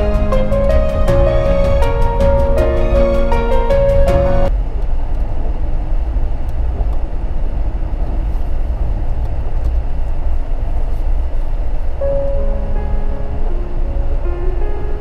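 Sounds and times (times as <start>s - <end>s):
car engine and tyre rumble: 3.9s - 15.0s.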